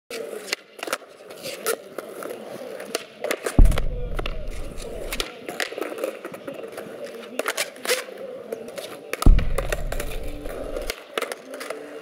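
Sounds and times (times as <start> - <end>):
skateboard clacks: 0.1 - 12.0
skateboard wheels rolling on concrete: 0.1 - 12.0
deep rumble: 3.6 - 5.2
heavy low thud: 3.6 - 5.2, 9.3 - 10.9.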